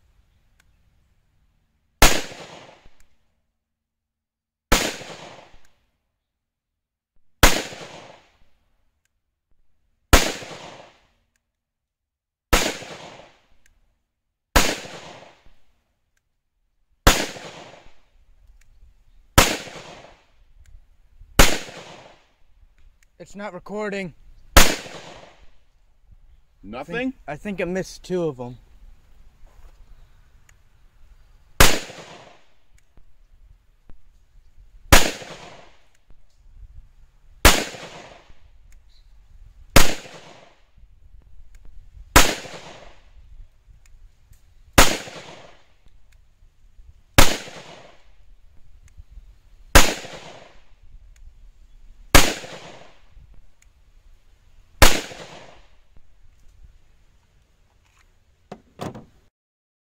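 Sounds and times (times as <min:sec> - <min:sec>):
faint clicks: 0:00.5 - 0:00.8, 0:29.7 - 0:30.6, 0:48.8 - 0:49.0, 0:53.6 - 0:53.8
pistol shots with echo: 0:02.0 - 0:03.0, 0:04.7 - 0:05.6, 0:07.4 - 0:08.3, 0:10.1 - 0:11.0, 0:12.5 - 0:13.4, 0:14.6 - 0:15.4, 0:17.1 - 0:18.0, 0:19.4 - 0:20.2, 0:21.4 - 0:22.2, 0:24.6 - 0:25.4, 0:31.6 - 0:32.5, 0:34.9 - 0:35.8, 0:37.4 - 0:38.4, 0:39.8 - 0:40.5, 0:42.2 - 0:43.0, 0:44.8 - 0:45.7, 0:47.2 - 0:48.1, 0:49.8 - 0:50.7, 0:52.1 - 0:53.1, 0:54.8 - 0:55.7.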